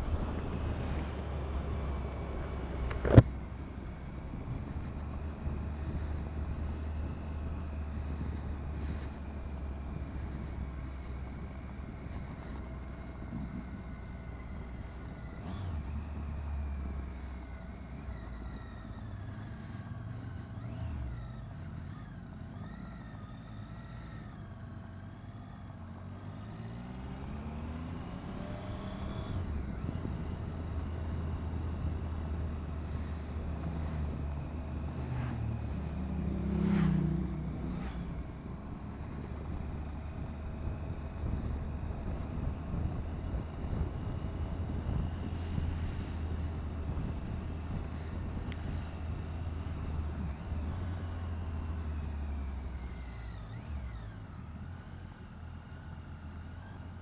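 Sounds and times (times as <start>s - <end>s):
motorcycle engine revving: 0.0s - 57.0s
wind noise: 27.7s - 51.5s.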